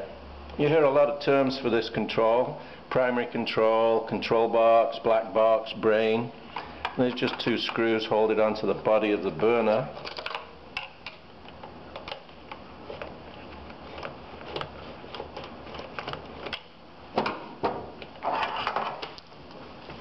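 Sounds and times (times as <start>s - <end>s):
metal box scraping rattle: 18.2s - 19.0s.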